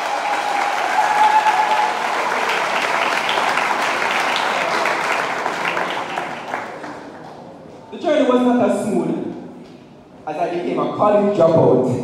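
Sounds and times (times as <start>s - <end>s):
person cheering: 0.0s - 2.1s
audience applauding: 0.0s - 7.4s.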